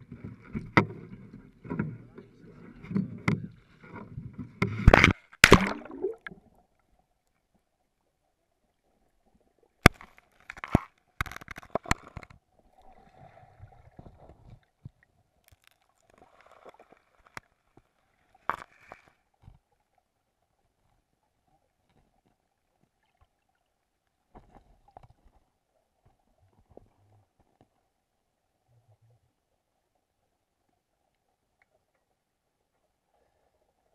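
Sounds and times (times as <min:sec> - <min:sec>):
underwater gurgling: 0:00.0 - 0:06.9
underwater clicks: 0:02.8 - 0:06.4, 0:09.8 - 0:12.4
water splashing: 0:04.6 - 0:06.6.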